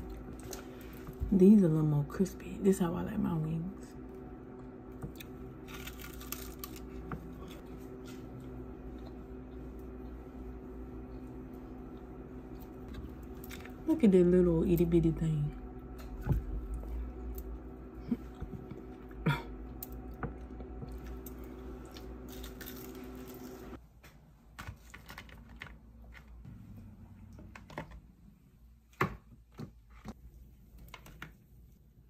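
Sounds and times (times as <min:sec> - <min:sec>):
steady hum: 0:00.0 - 0:23.8
chewing and biting crispy food: 0:05.2 - 0:10.1, 0:19.8 - 0:23.7.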